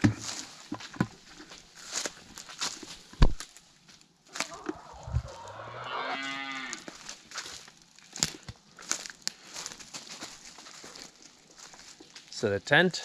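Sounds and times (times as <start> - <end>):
footsteps crunching on dry leaves: 0.0 - 12.4
farm animal call dropping in pitch: 4.4 - 6.8.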